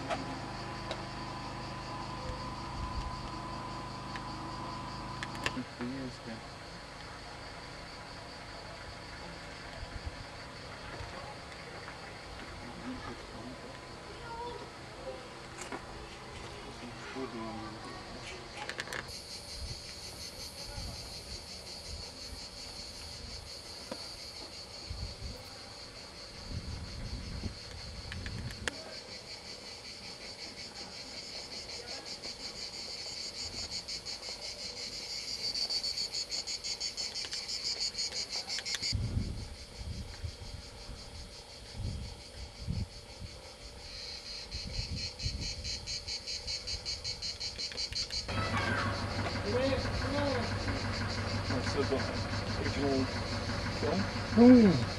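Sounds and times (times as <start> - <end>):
cicadas droning: 0.0 - 54.9
low rumbling on microphone: 39.0 - 41.0.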